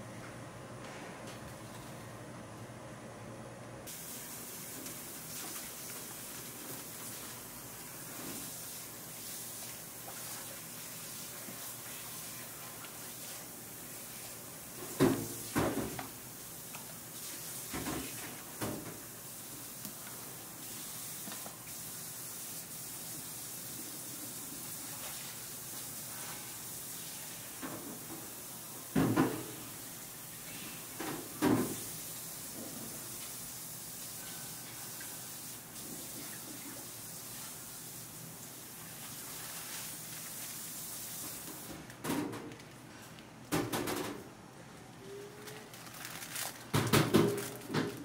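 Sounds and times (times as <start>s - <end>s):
steady kitchen hiss: 0.0s - 48.0s.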